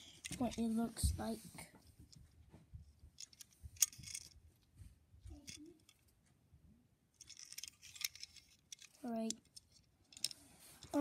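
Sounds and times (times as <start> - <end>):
toy car clicks and rustles: 0.0 - 0.7, 3.2 - 4.4, 7.2 - 11.0.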